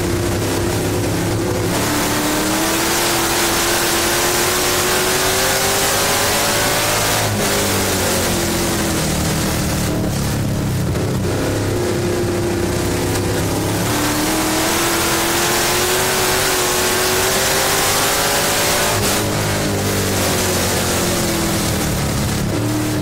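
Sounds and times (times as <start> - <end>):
race car engine: 0.0 - 23.0
wind and track noise: 0.0 - 23.0.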